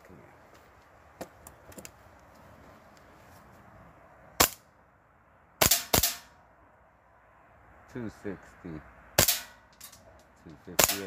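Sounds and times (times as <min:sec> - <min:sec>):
airsoft pistol shots: 0:05.6 - 0:06.3, 0:10.8 - 0:11.0.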